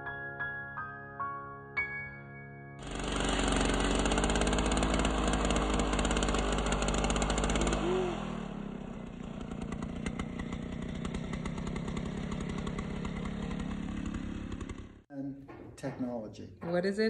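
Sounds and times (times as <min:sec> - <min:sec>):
ice auger engine running: 0:02.8 - 0:15.0.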